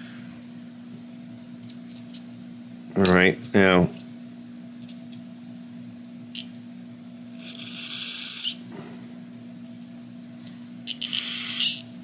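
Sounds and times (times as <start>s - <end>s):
compressed air hissing: 7.4s - 8.6s, 11.0s - 11.9s.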